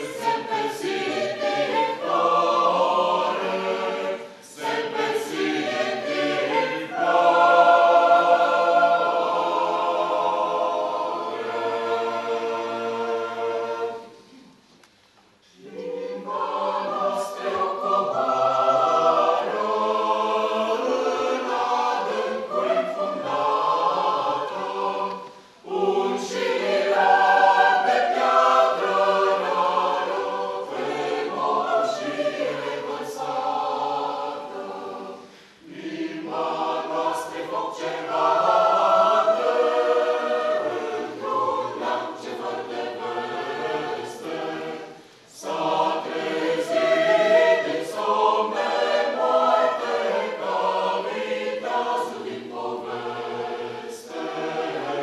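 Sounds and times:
mixed choir singing: 0.0 - 14.6, 15.4 - 55.0.

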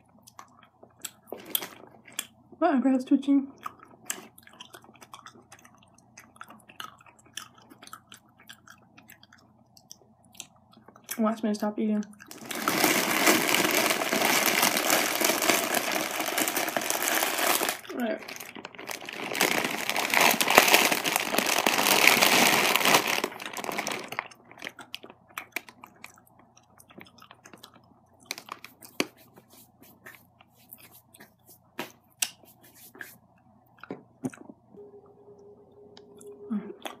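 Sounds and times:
chewing candy: 0.0 - 2.5, 3.5 - 11.4, 12.0 - 29.3
mouth clicks and crunches: 0.1 - 2.4, 3.5 - 11.2, 12.0 - 34.6
rustling handling noise: 12.3 - 24.2.

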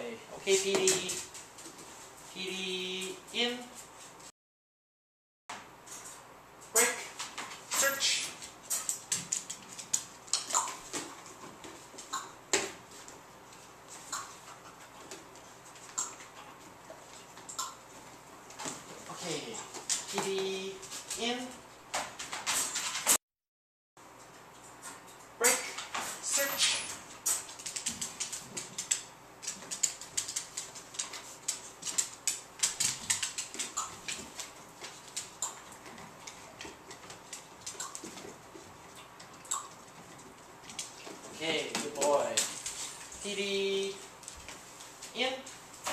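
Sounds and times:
dog claws clicking on wooden floor: 8.4 - 11.8, 27.2 - 43.1.

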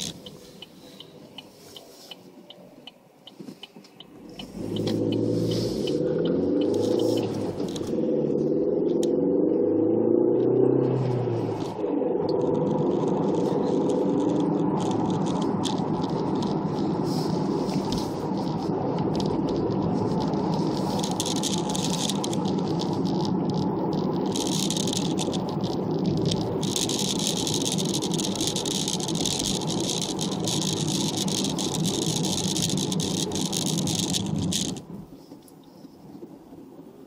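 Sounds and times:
dense continuous rattle: 0.0 - 1.8, 4.4 - 8.0, 12.4 - 36.5
road and engine noise: 0.0 - 37.0.

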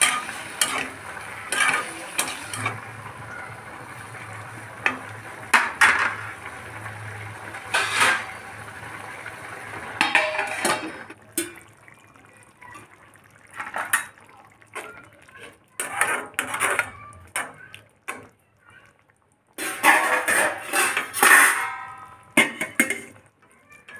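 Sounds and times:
metal spatula scraping a pan: 0.0 - 3.3, 7.5 - 8.4, 10.0 - 11.1, 15.8 - 17.0, 19.6 - 23.1
liquid pouring: 0.0 - 20.9
frying sizzle: 0.0 - 23.9.

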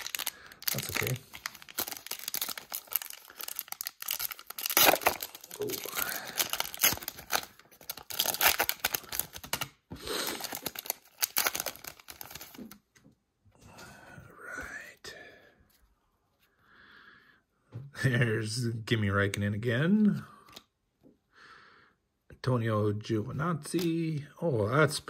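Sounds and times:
card pack wrapper tearing: 0.0 - 12.8.

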